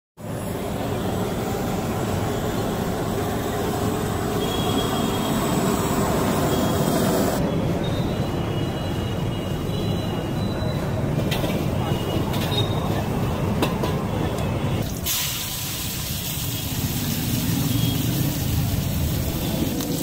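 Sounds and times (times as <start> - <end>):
street noise: 0.2 - 20.0
hot plate sizzling: 14.8 - 20.0.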